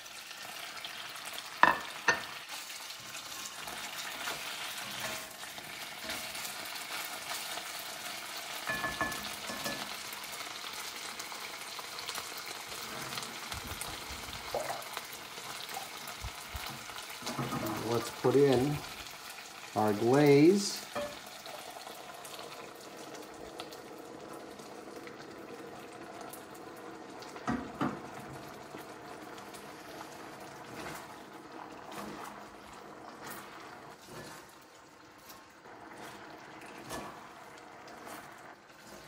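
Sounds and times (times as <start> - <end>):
glaze bubbling in a wok: 0.0 - 39.0
spatula stirring: 1.6 - 7.8, 29.7 - 39.0.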